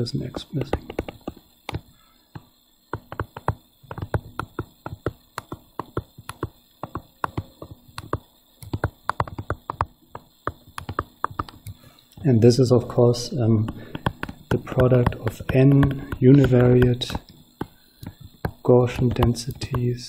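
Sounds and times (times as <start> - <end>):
stylus tapping on tablet screen: 0.4 - 11.8, 13.6 - 19.9.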